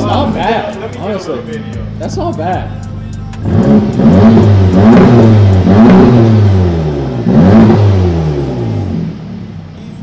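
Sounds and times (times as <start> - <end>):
car engine revving: 0.0 - 10.0.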